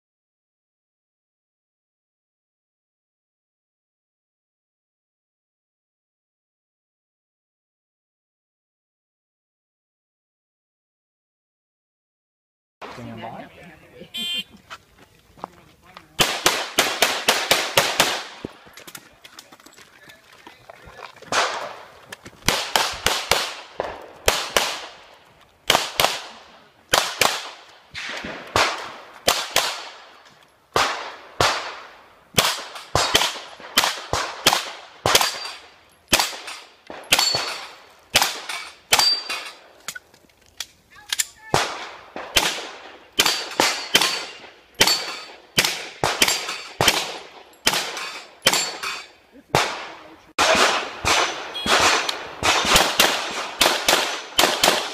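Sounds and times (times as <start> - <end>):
pistol shots: 16.2 - 19.0, 21.3 - 39.8, 41.5 - 54.9.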